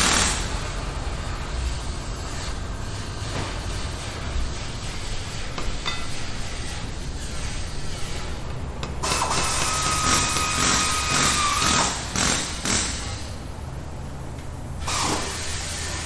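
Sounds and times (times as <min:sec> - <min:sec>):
steady low hum: 0:00.0 - 0:14.9
air tool hissing with whine: 0:14.8 - 0:16.0.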